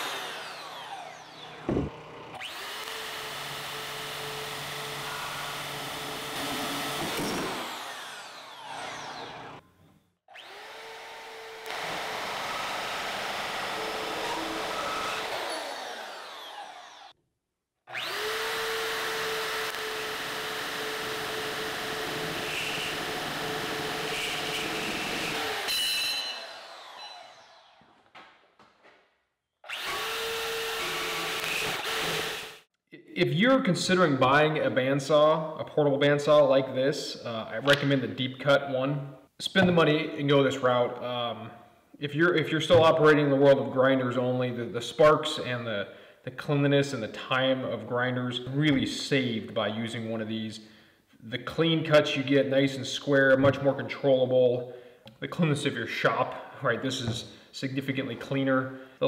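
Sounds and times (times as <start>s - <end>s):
bandsaw running: 0.0s - 9.6s, 10.3s - 17.2s, 17.9s - 28.0s, 29.7s - 32.7s.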